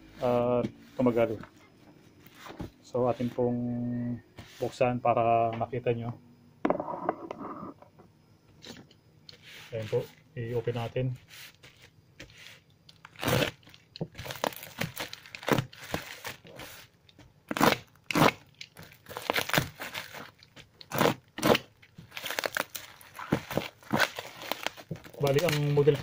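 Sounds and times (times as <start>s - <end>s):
plastic wrapping crinkling: 13.0s - 16.8s, 17.6s - 26.0s.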